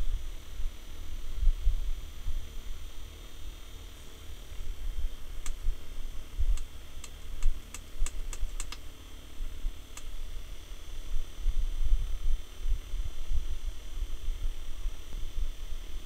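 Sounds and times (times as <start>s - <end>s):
small fan running: 0.0s - 16.0s
sharp light clicks: 5.4s - 5.7s, 6.5s - 8.9s, 9.9s - 10.2s.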